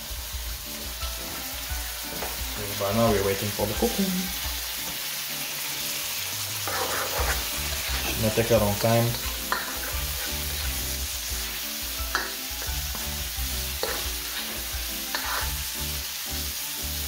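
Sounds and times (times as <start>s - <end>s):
food sizzling in a wok: 0.0s - 17.0s
spatula scraping a pan: 6.5s - 15.8s.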